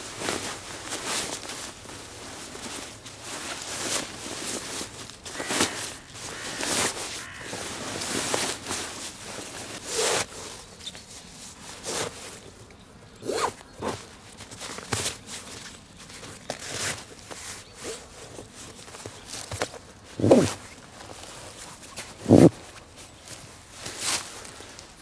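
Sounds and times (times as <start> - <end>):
fabric rustling swishes: 20.2 - 20.6, 22.2 - 22.5.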